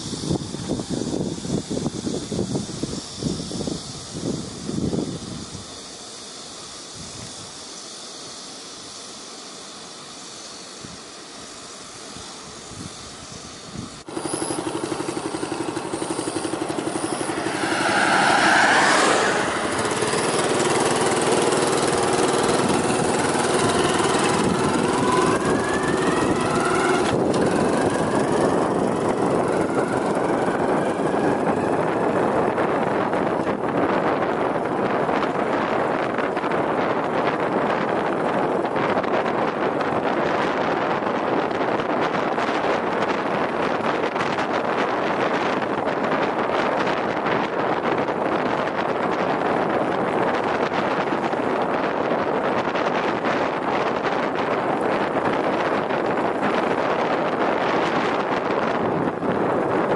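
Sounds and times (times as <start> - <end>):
outdoor hiss: 0.0 - 27.8
road and wind noise: 0.0 - 59.9
vehicle engine accelerating: 14.1 - 39.3.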